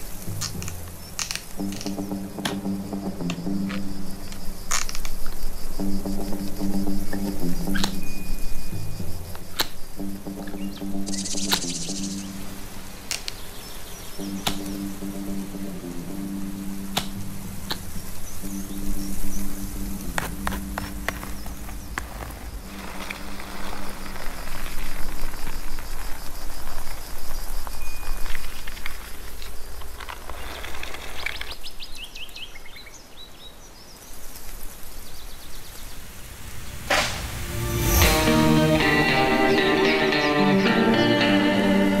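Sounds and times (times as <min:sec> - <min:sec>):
low hum: 0:00.0 - 0:13.1, 0:14.0 - 0:24.4, 0:36.1 - 0:39.9
steady noise bed: 0:00.0 - 0:27.9, 0:35.3 - 0:40.7
sharp clicks: 0:14.2 - 0:14.9
sharp noisy swell: 0:35.9 - 0:40.7.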